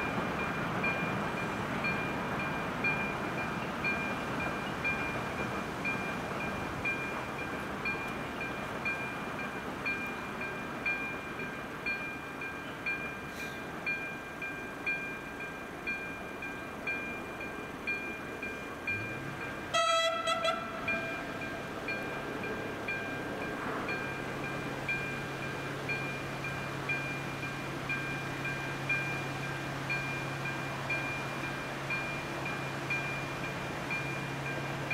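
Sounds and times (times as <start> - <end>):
level crossing warning bell: 0.0 - 34.9
low engine hum: 0.0 - 34.9
train horn blast: 19.1 - 21.7.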